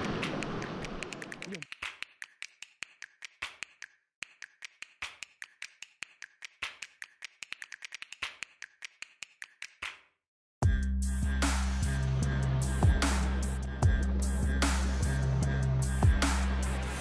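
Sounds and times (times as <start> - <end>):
sharp clicks and taps: 0.1 - 10.0
electronic music with heavy bass: 10.6 - 17.0.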